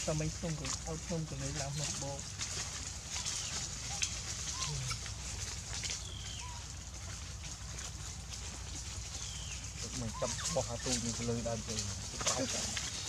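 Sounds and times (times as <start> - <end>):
faint short chirping calls: 3.2 - 5.2, 6.0 - 6.7.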